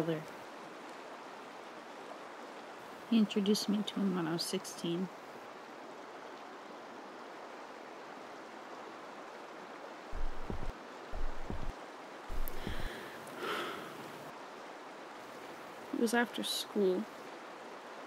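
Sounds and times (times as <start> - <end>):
wind gusts buffeting microphone: 10.2 - 11.7
faint breath or sniff: 12.5 - 14.1.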